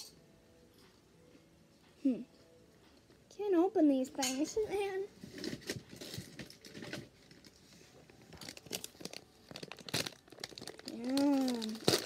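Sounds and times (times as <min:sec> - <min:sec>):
plastic wrapper crinkling: 0:05.2 - 0:12.0.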